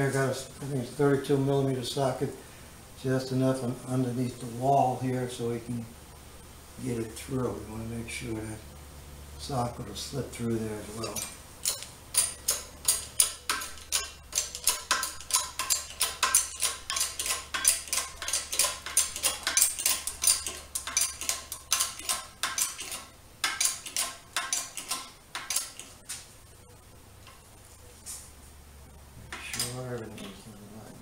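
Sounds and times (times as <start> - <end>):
hydraulic jack handle clinking: 11.0 - 25.9.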